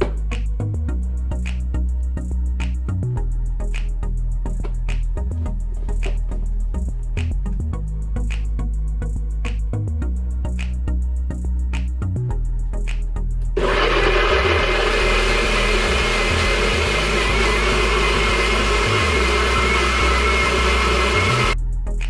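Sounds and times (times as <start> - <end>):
blender motor whine: 13.6 - 21.6.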